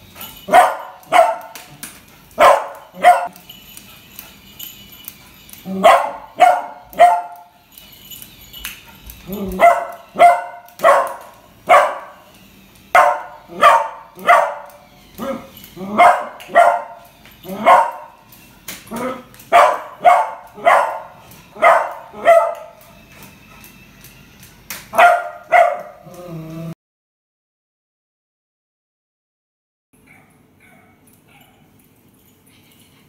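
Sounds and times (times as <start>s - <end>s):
puppy barking: 0.4s - 1.8s, 2.4s - 3.4s, 5.7s - 7.6s, 9.3s - 12.3s, 12.9s - 18.2s, 18.9s - 22.9s, 24.9s - 26.2s, 30.0s - 31.7s.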